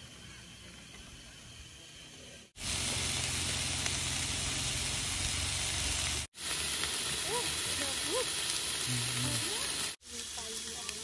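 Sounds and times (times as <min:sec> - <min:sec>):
meat sizzling in a hot pan: 0:02.6 - 0:11.0.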